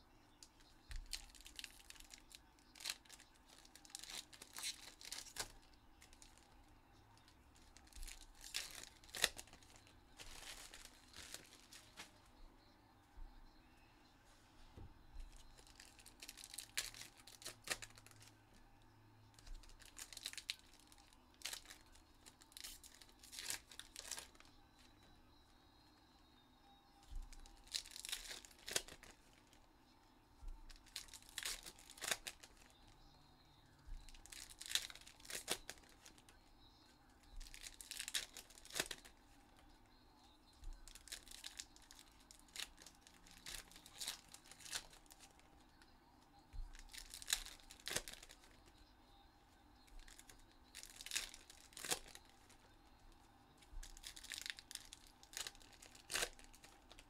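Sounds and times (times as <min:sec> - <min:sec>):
foil wrappers tearing and crinkling: 0:00.9 - 0:06.5, 0:07.2 - 0:12.2, 0:15.2 - 0:18.3, 0:19.4 - 0:24.5, 0:27.1 - 0:29.6, 0:30.6 - 0:33.1, 0:33.8 - 0:36.4, 0:37.3 - 0:39.2, 0:40.6 - 0:45.5, 0:46.5 - 0:48.7, 0:49.8 - 0:52.7, 0:53.6 - 0:57.0.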